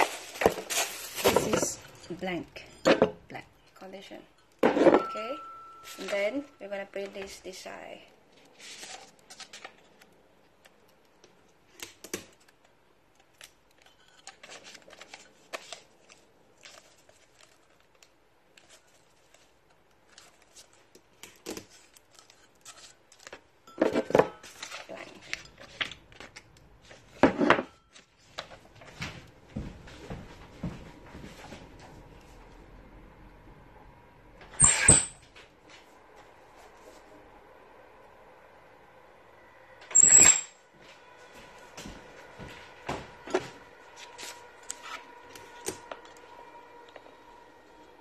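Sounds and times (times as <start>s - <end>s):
paper rustling: 0.0s - 1.9s, 8.3s - 10.2s, 13.2s - 23.4s.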